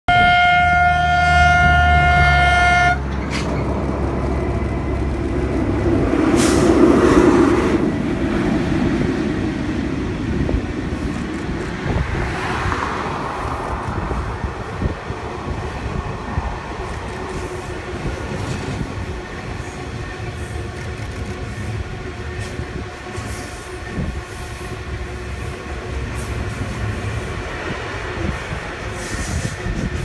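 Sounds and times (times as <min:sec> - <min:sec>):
locomotive horn blast: 0:00.1 - 0:03.1
train wheels rumbling on rails: 0:00.1 - 0:30.0.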